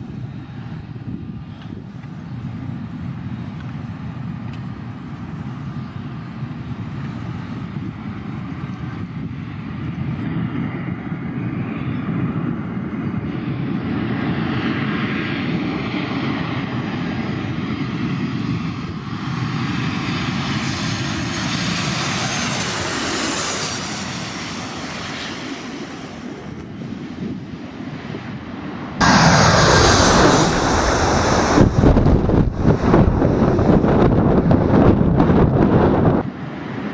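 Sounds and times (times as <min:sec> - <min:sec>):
wind on microphone: 0:00.0 - 0:02.8, 0:29.0 - 0:36.9
jet engine rumble with fan whine: 0:00.0 - 0:36.9.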